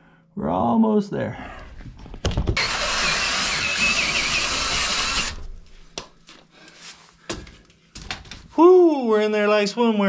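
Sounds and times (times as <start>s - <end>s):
drill whining through wood: 2.6s - 5.5s.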